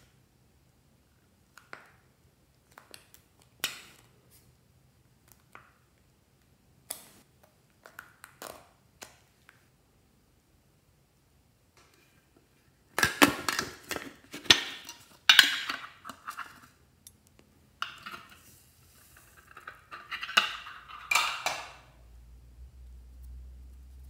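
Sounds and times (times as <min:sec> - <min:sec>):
metal tin lid clattering: 0:13.0 - 0:16.7, 0:17.8 - 0:21.9.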